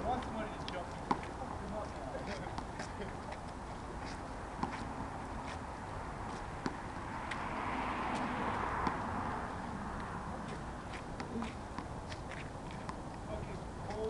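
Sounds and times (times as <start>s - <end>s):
street traffic noise: 0.0s - 14.0s
vehicle passing by: 4.0s - 12.3s.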